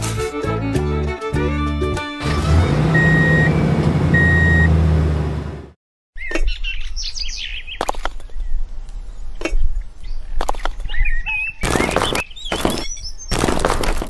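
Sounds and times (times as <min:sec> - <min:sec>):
reversing beep: 0:02.9 - 0:04.8
birds chirping: 0:06.2 - 0:13.5.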